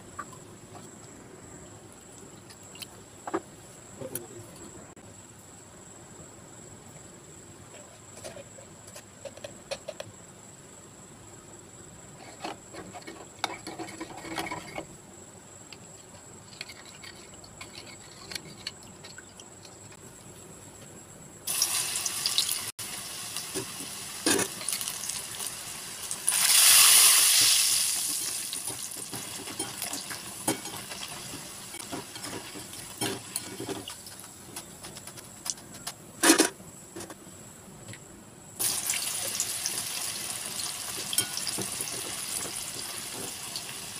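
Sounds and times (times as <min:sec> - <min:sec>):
frying in hot oil sizzling: 0:21.5 - 0:34.3, 0:38.6 - 0:43.9.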